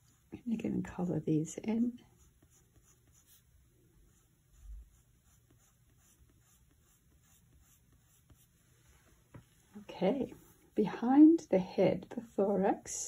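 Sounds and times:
pencil scratching on paper: 0.0s - 1.1s, 2.0s - 8.7s.

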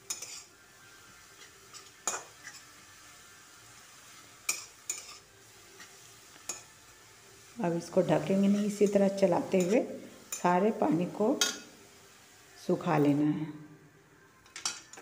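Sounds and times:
metal spatula scraping a pan: 0.0s - 3.4s, 4.0s - 6.8s, 7.9s - 11.8s
faint sizzle: 0.0s - 15.0s.

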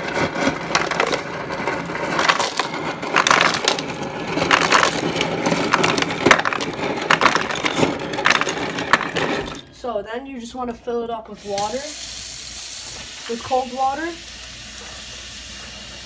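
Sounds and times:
ice cubes clattering into plastic bag: 0.0s - 9.7s.

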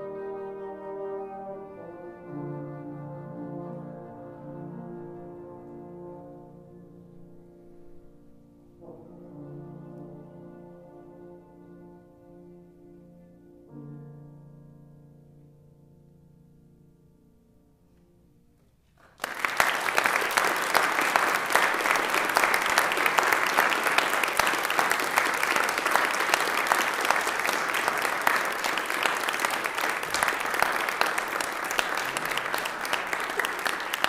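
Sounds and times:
audience applauding: 19.0s - 34.0s.

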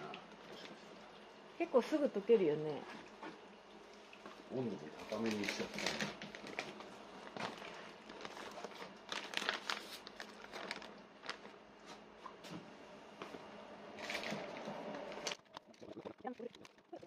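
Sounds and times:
plastic bags crinkling in water: 4.9s - 11.9s, 14.0s - 17.0s.

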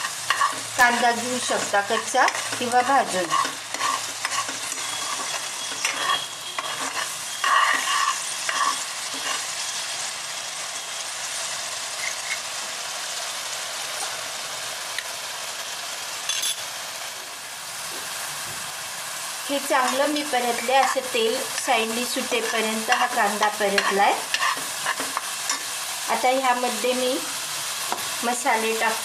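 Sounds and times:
metal ladle scraping a pan: 0.0s - 9.7s, 22.4s - 25.8s
paste sizzling in oil: 0.0s - 16.4s, 17.4s - 29.0s.

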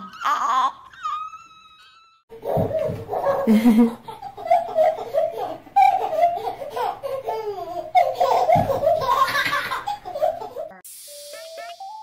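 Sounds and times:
baby laughing: 0.0s - 10.8s.

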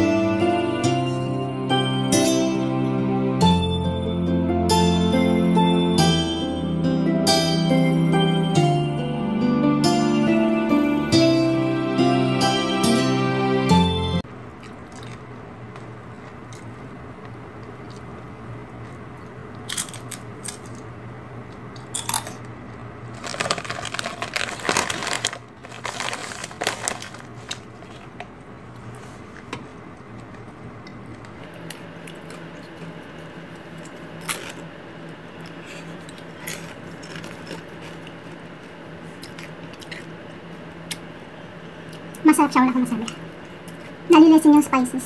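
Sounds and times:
chips being crunched and chewed: 14.6s - 20.9s, 21.6s - 28.9s, 33.6s - 40.2s.

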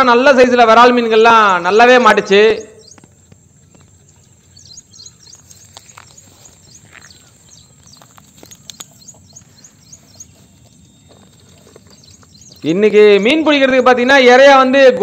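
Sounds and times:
small birds chirping: 0.6s - 15.0s
faint clicks and rustles: 5.2s - 12.7s.

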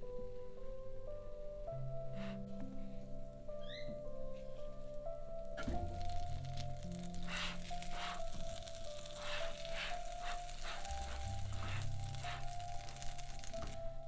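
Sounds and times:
egg toast sizzling in a pan: 5.8s - 13.9s.

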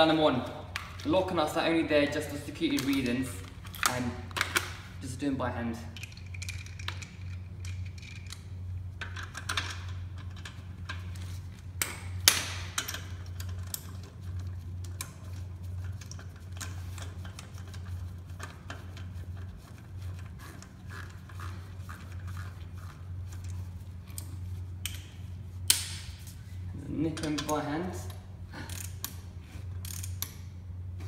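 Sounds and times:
steady low hum: 0.0s - 31.0s
metallic clicks and rattles: 6.0s - 11.2s.

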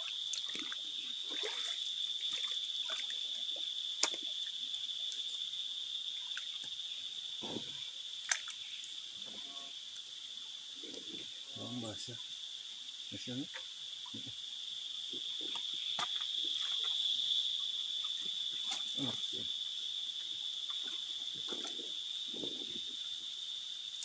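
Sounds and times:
water splashing: 0.0s - 5.4s, 7.4s - 8.6s, 15.2s - 17.2s, 18.0s - 19.5s, 20.6s - 23.0s
insects droning: 0.0s - 24.0s.

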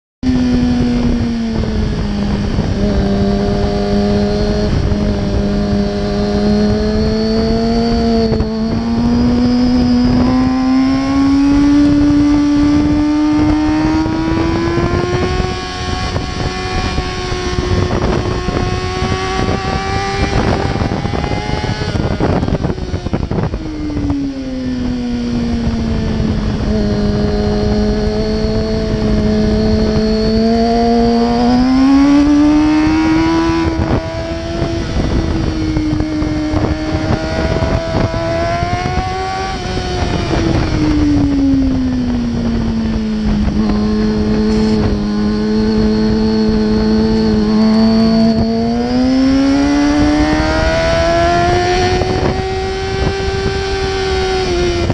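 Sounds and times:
motorcycle engine accelerating: 0.2s - 54.9s
wind buffeting on microphone: 0.2s - 54.9s.

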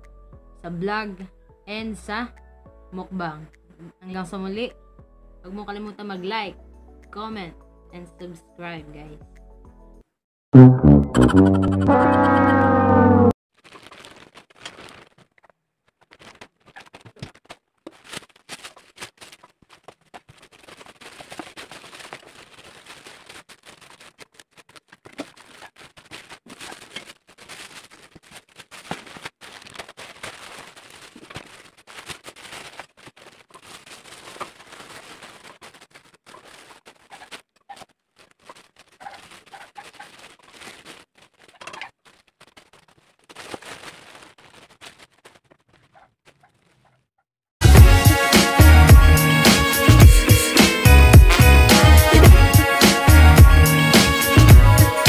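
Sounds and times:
plastic packaging crinkling: 13.5s - 46.9s.

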